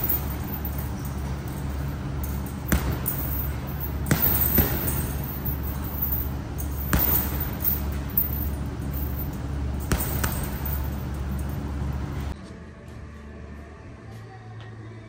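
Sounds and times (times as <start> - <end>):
punches thudding on heavy bag: 0.0 - 11.2
steady low hum: 0.0 - 15.0.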